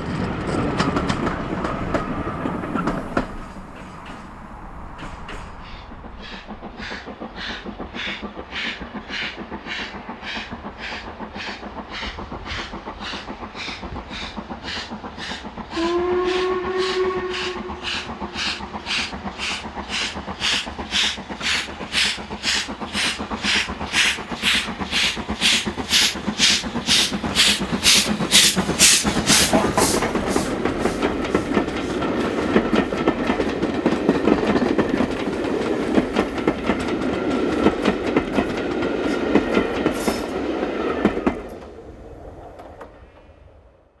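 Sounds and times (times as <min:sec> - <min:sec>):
steam locomotive exhaust beats: 0:00.0 - 0:41.7
train wheels clattering over rails: 0:00.0 - 0:43.3
steam whistle: 0:15.8 - 0:18.0.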